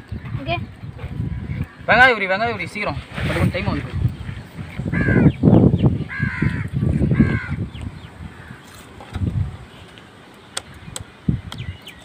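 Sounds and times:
crow cawing: 0:04.9 - 0:05.4, 0:06.1 - 0:07.7, 0:08.3 - 0:08.8.

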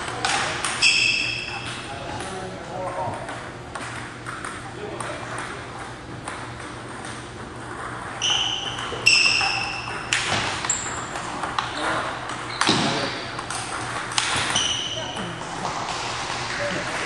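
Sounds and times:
shoes squeaking on wooden floor: 0:11.7 - 0:13.4, 0:14.3 - 0:15.8.

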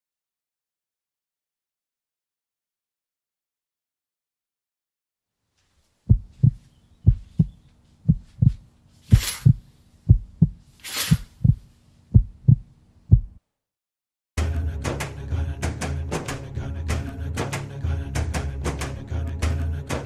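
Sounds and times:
low steady hum: 0:05.8 - 0:13.4
heartbeat thumps: 0:06.1 - 0:13.4
airy whooshes: 0:09.1 - 0:09.6, 0:10.8 - 0:11.5
music with a hit: 0:14.4 - 0:20.0.

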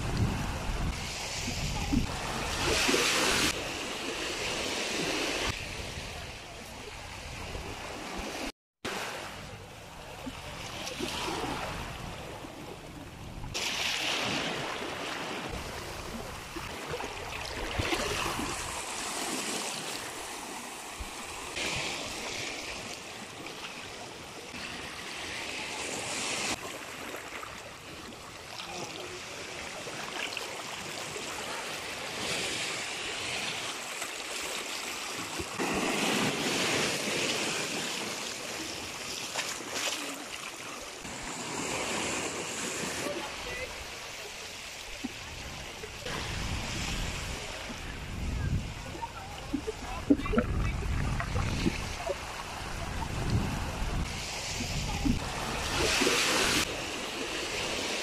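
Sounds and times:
waves washing over rocks: 0:08.9 - 0:58.0.

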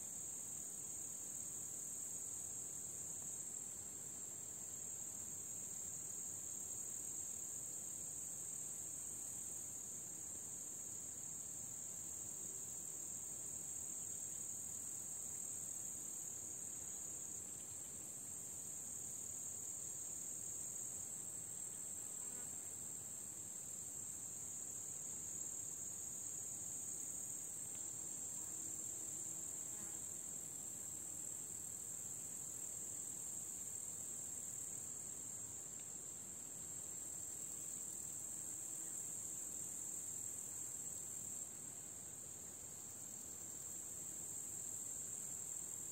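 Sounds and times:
crickets chirring: 0:10.8 - 0:45.9.

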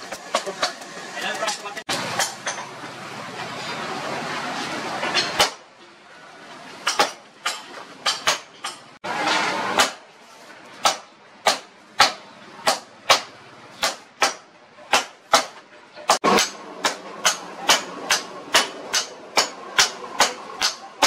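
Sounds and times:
hammer striking hot steel on anvil: 0:00.0 - 0:02.7, 0:05.0 - 0:05.7, 0:06.8 - 0:08.9, 0:09.7 - 0:10.0, 0:10.8 - 0:21.0.

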